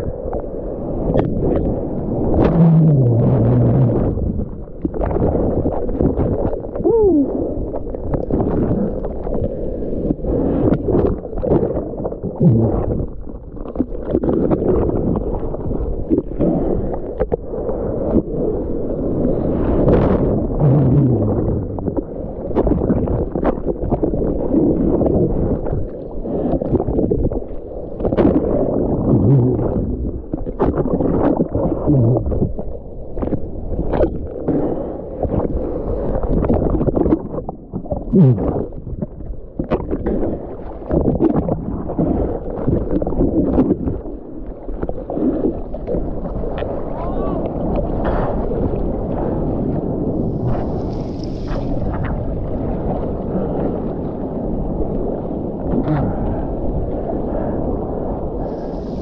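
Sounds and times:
sea water sloshing and churning: 0:00.0 - 0:59.0
water splashes and slaps: 0:35.2 - 0:53.2.

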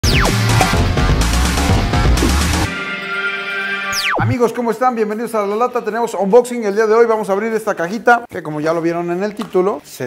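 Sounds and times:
electronic music jingle: 0:00.0 - 0:06.8.

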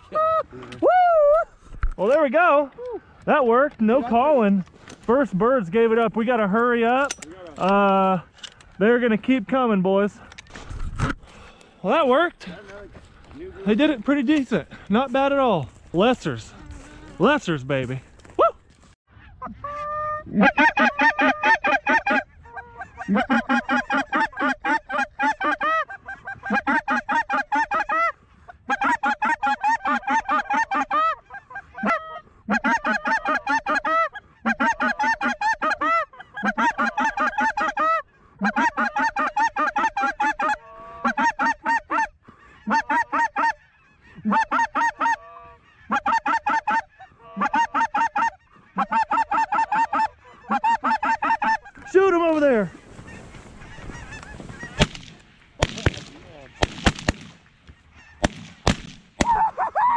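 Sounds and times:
goose call clucks and honks: 0:19.2 - 0:54.9.

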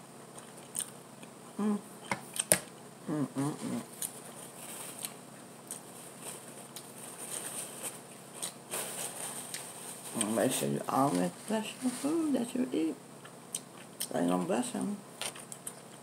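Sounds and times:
person humming: 0:01.6 - 0:01.9, 0:03.0 - 0:03.9
paper napkin rustling: 0:05.8 - 0:12.5.

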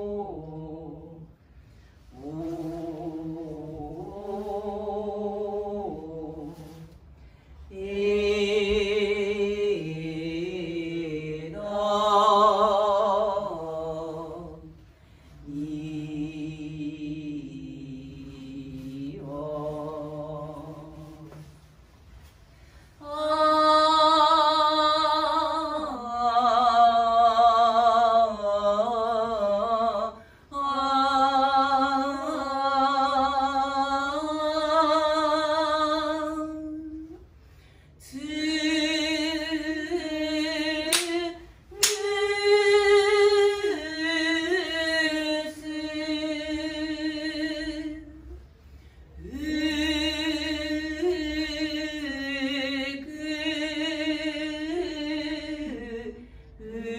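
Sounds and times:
woman singing unaccompanied: 0:07.7 - 0:14.8, 0:15.5 - 0:21.5, 0:23.0 - 0:37.3, 0:38.0 - 0:48.4, 0:49.2 - 0:56.9.

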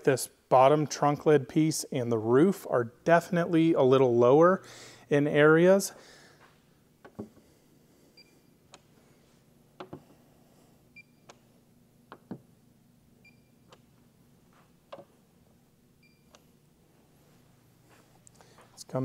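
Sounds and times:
probe clicking and tapping on metal: 0:12.1 - 0:12.4.

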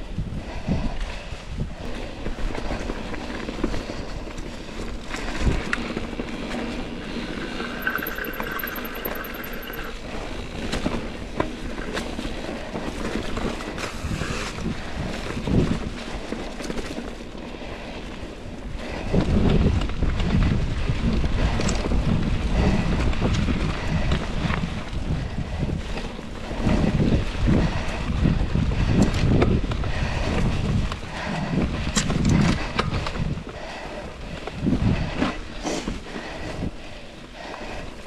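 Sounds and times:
bike rattling over roots: 0:01.8 - 0:36.6
rapid ticking buzz: 0:07.6 - 0:09.9
wind buffeting microphone: 0:12.6 - 0:38.0.

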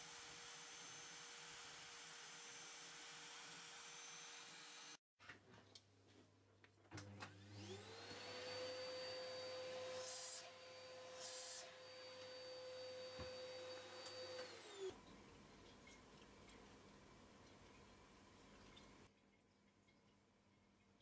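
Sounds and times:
router spindle high whine: 0:00.0 - 0:05.0, 0:07.4 - 0:14.9.

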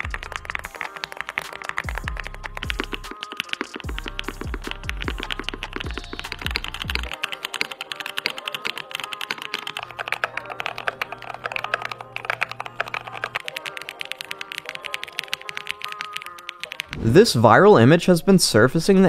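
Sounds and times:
background music with deep bass: 0:00.0 - 0:07.2
mechanical keyboard typing: 0:00.0 - 0:17.0.

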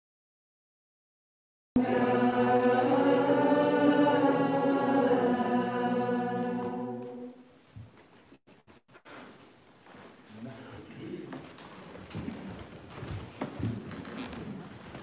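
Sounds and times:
voices singing liturgical chant: 0:01.8 - 0:07.5.

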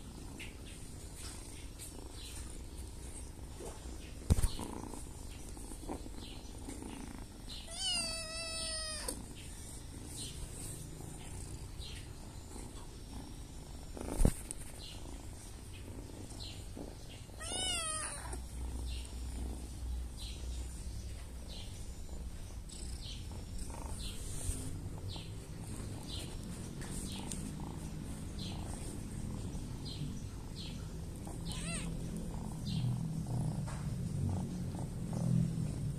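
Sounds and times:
cat purring: 0:00.0 - 0:35.9
cat meowing: 0:07.7 - 0:09.2, 0:17.4 - 0:18.4, 0:31.4 - 0:32.0.

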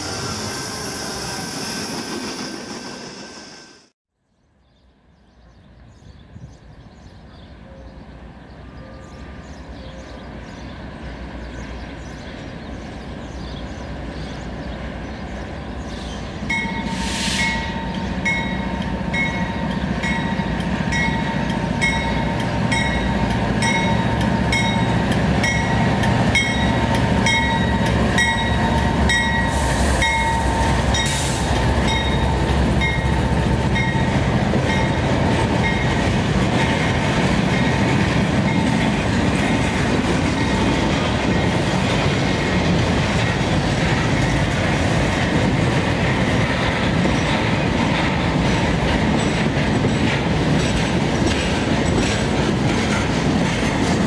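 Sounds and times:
diesel locomotive engine rumble: 0:05.1 - 0:54.0
train wheels clattering on rails: 0:15.1 - 0:54.0.

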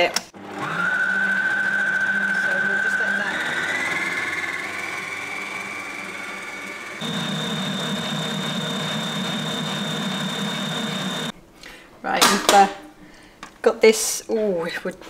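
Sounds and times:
stand mixer motor whine: 0:00.4 - 0:11.3.

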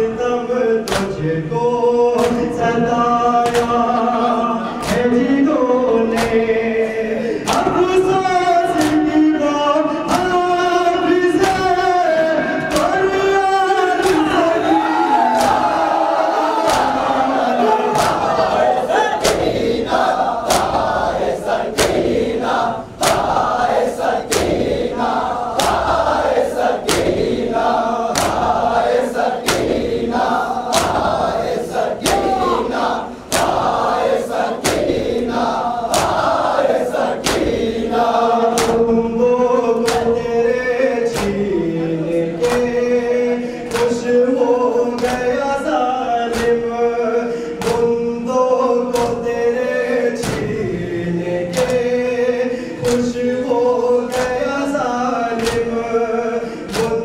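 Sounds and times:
man chanting into a microphone: 0:00.0 - 0:20.0, 0:20.6 - 0:36.1, 0:36.8 - 0:57.0
crowd of men chanting: 0:00.0 - 0:57.0
hands slapping chests: 0:00.9 - 0:01.1, 0:03.4 - 0:03.9, 0:07.5 - 0:07.8, 0:08.8 - 0:09.1, 0:14.0 - 0:14.4, 0:15.2 - 0:15.8, 0:16.6 - 0:17.2, 0:17.9 - 0:37.8, 0:38.5 - 0:38.8, 0:39.8 - 0:40.2, 0:41.1 - 0:41.5, 0:43.7 - 0:44.0, 0:48.9 - 0:49.3, 0:51.5 - 0:51.9, 0:52.8 - 0:53.2, 0:54.1 - 0:54.5, 0:55.4 - 0:55.8, 0:56.7 - 0:57.0.

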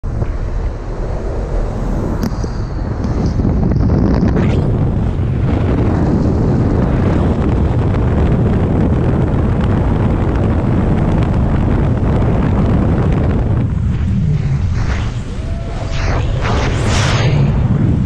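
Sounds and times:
aircraft engine: 0:00.0 - 0:18.0
wind buffeting microphone: 0:00.0 - 0:18.0.

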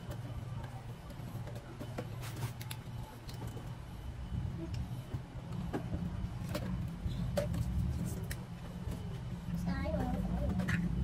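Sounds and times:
steady low rumble: 0:02.8 - 0:11.0.

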